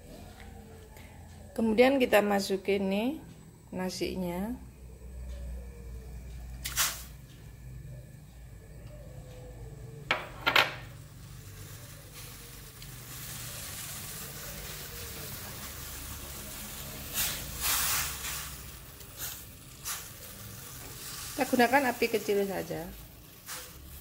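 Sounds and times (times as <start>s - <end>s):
water sizzling in a wok: 6.6s - 7.2s, 10.5s - 24.0s
rice paddle scraping wok: 11.4s - 24.0s.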